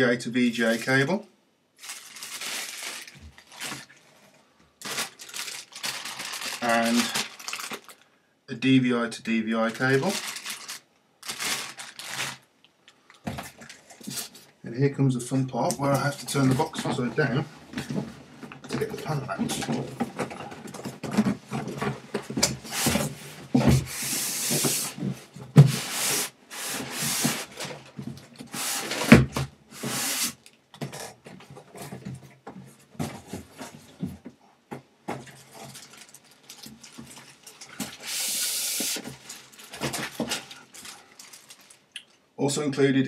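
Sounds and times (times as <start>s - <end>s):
cardboard and polystyrene scraping: 1.8s - 8.0s, 9.7s - 12.4s, 19.5s - 30.5s, 35.2s - 41.8s.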